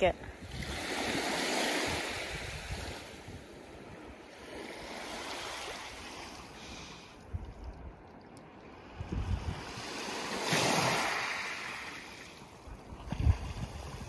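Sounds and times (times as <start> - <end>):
wind buffeting microphone: 0.2 - 4.4, 8.8 - 11.3, 12.7 - 14.0
waves washing onto pebble beach: 9.4 - 12.4.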